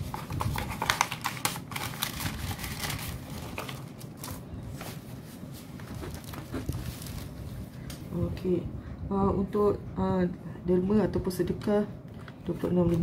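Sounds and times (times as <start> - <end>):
paper rustling and crinkling: 0.0 - 7.9.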